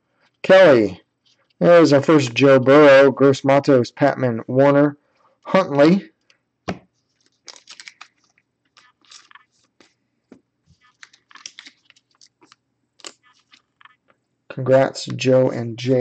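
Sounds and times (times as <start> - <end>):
trading cards shuffled by hand: 6.7 - 10.0, 10.7 - 14.0.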